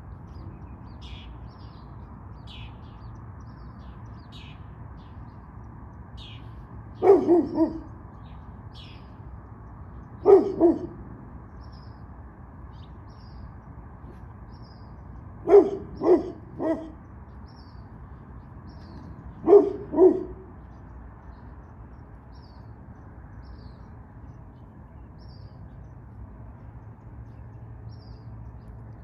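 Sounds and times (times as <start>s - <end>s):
dog barking: 7.0s - 7.9s, 10.2s - 11.0s, 15.4s - 17.0s, 19.4s - 20.5s.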